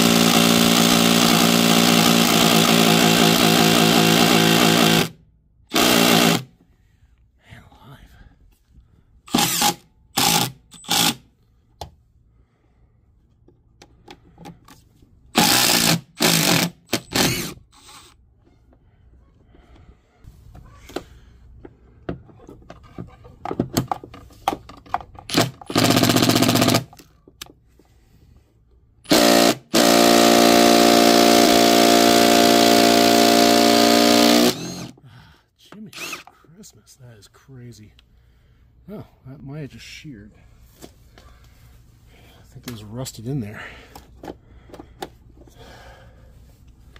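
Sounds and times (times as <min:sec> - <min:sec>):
impact driver hammering: 0:05.7 - 0:06.5, 0:15.4 - 0:17.6, 0:25.3 - 0:27.0, 0:29.1 - 0:35.0.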